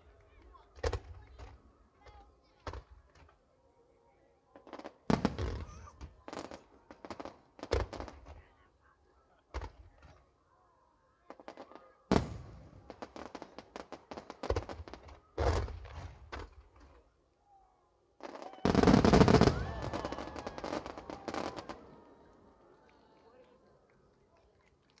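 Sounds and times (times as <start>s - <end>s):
fireworks crackling: 4.6s - 8.4s, 11.3s - 17.0s, 18.2s - 23.2s
fireworks booming: 5.0s - 8.3s, 12.1s - 16.8s, 18.6s - 21.9s.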